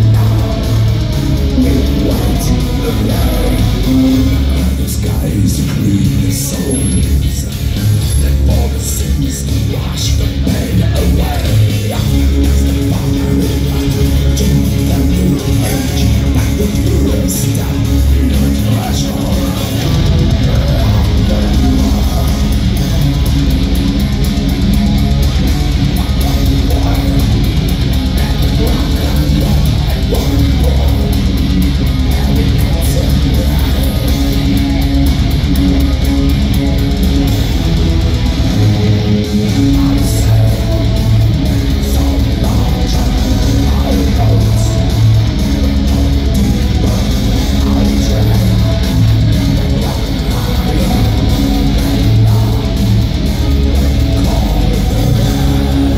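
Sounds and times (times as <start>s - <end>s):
heavy metal band playing live: 0.0s - 55.9s.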